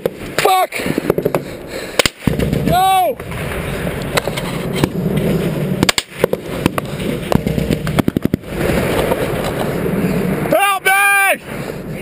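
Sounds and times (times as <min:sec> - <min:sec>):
gunshots: 0:00.0 - 0:04.2, 0:05.8 - 0:08.7.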